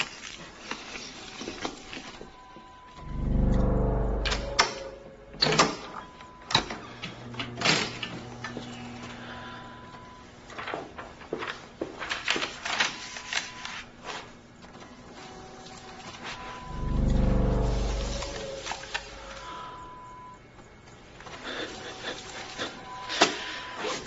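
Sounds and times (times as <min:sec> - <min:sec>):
paper rustling: 0:00.0 - 0:02.3, 0:10.5 - 0:14.4
faint steady hum: 0:15.0 - 0:21.9.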